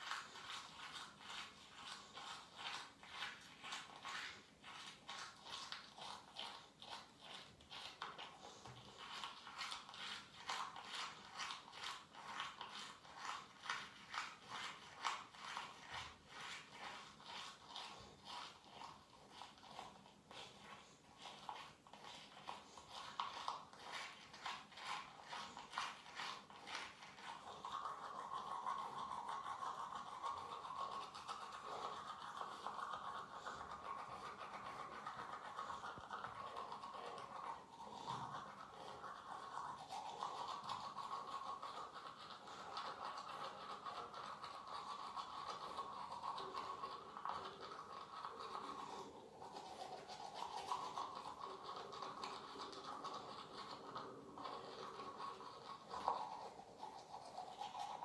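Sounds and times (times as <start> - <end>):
toothbrush scrubbing teeth: 0.0 - 58.0.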